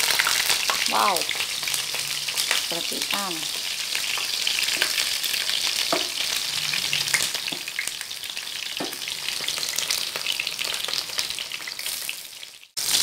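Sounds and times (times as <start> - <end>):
eggplant sizzling in hot oil: 0.0 - 13.0.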